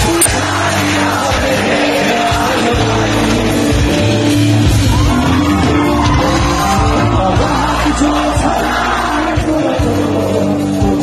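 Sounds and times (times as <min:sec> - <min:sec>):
bass line: 0:00.0 - 0:11.0
electric guitar: 0:00.0 - 0:11.0
live rock band: 0:00.0 - 0:11.0
person singing: 0:06.3 - 0:11.0.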